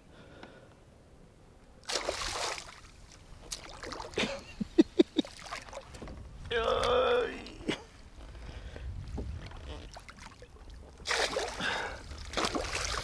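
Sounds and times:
fish thrashing and splashing: 0:11.0 - 0:13.0.

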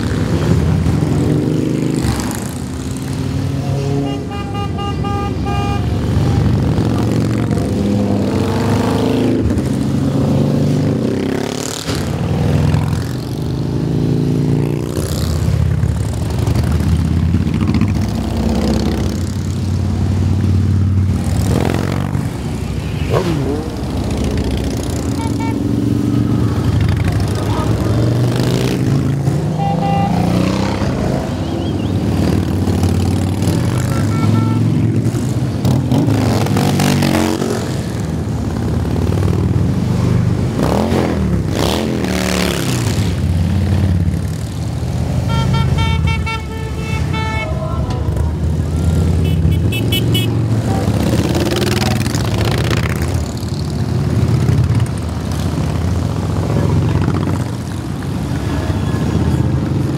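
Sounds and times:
motorcycles riding past: 0:00.0 - 0:59.9
horn honking: 0:03.8 - 0:06.5, 0:25.1 - 0:25.8, 0:29.4 - 0:30.6, 0:33.6 - 0:35.0, 0:45.2 - 0:52.2.

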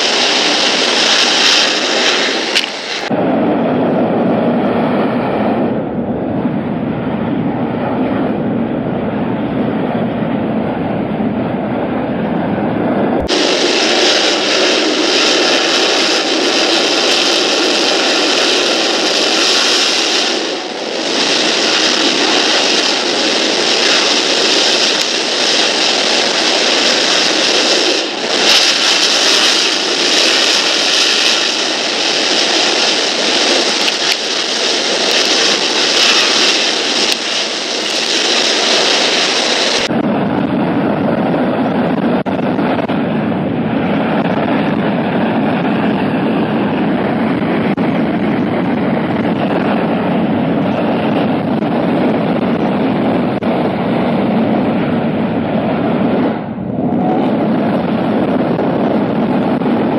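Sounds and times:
turbojet engine in afterburner: 0:00.0 - 0:59.9.

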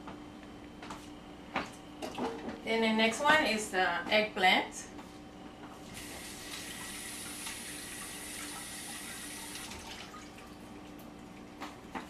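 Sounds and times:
tap water running into sink: 0:06.0 - 0:10.5.

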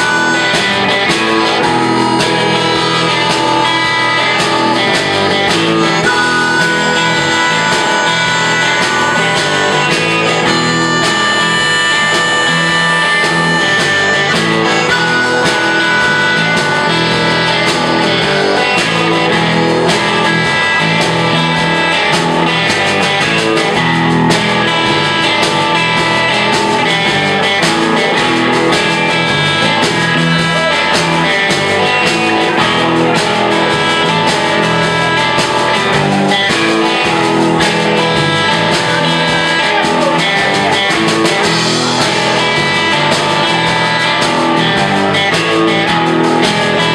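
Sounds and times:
live blues-rock band playing: 0:00.0 - 0:46.9.

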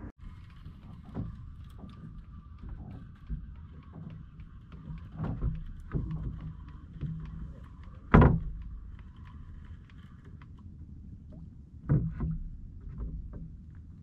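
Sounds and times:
low rumble of water and wind: 0:00.0 - 0:14.0
knocks on wooden boat: 0:05.1 - 0:08.8, 0:11.8 - 0:13.5.

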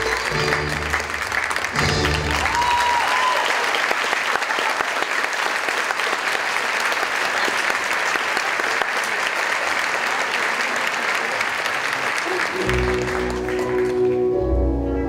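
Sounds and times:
audience applauding: 0:00.0 - 0:14.4
orchestra final chord: 0:12.6 - 0:15.0.

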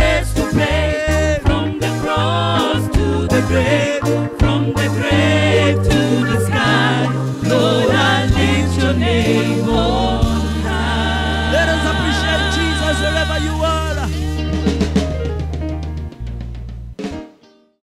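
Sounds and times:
people singing gospel song: 0:00.0 - 0:14.0
stepping bass line: 0:00.5 - 0:14.9.

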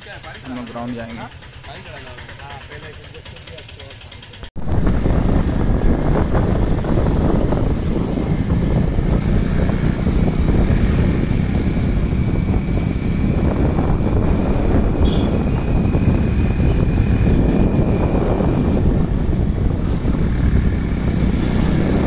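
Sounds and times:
vehicle rumble: 0:00.0 - 0:22.0
wind buffeting microphone: 0:04.6 - 0:22.0.

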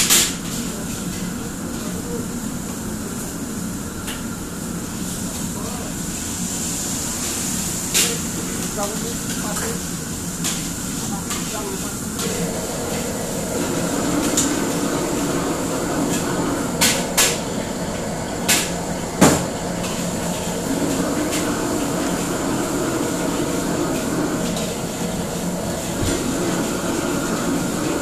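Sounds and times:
gas burners roaring: 0:00.0 - 0:28.0
extractor hood running: 0:11.9 - 0:28.0.

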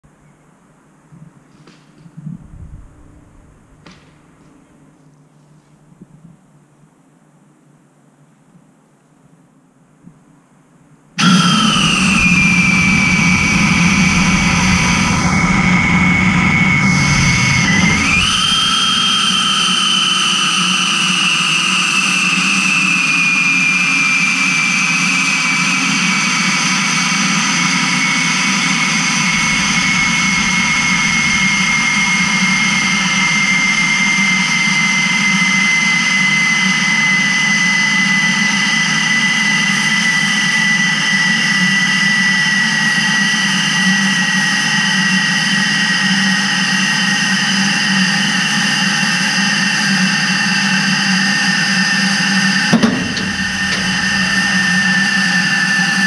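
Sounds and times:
low rumble: 0:02.3 - 0:04.4, 0:11.2 - 0:19.1, 0:28.7 - 0:34.5, 0:52.7 - 0:56.0
helium venting hiss with whistle: 0:11.2 - 0:56.0.

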